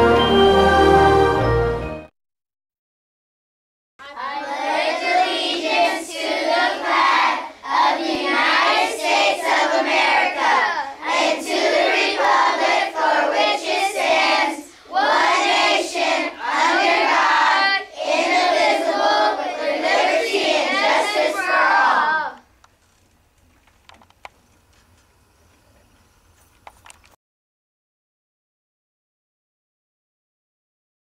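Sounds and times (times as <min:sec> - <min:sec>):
children reciting in unison: 0:04.0 - 0:22.4.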